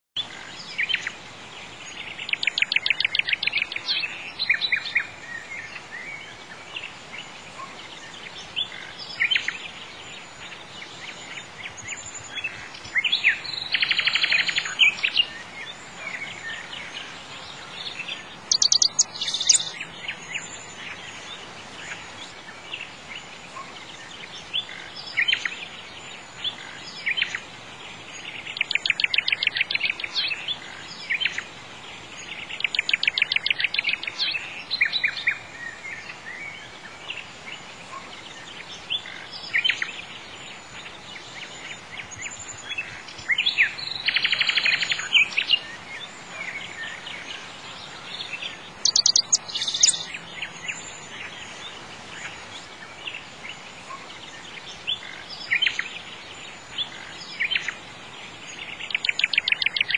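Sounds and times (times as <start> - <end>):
faint steady hiss: 0.2 - 59.9
songbird trills: 0.2 - 59.9
bird chirps: 1.8 - 6.8, 7.6 - 22.0, 28.2 - 31.4, 38.4 - 53.2, 58.4 - 59.9.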